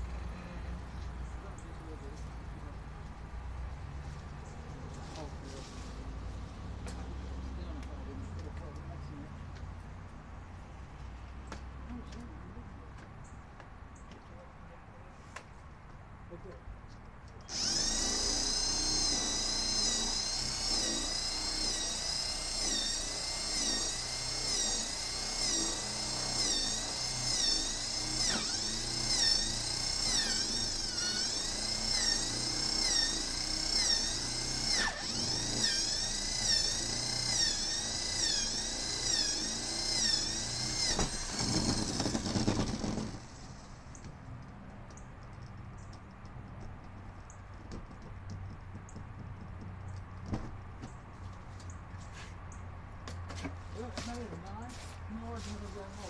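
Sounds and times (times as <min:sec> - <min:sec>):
electric drill drilling into wood: 0:17.5 - 0:44.2.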